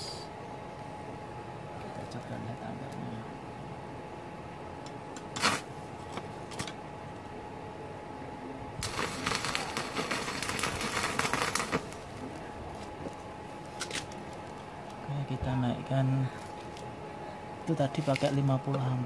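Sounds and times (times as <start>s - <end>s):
welding arc crackling: 8.8s - 15.0s.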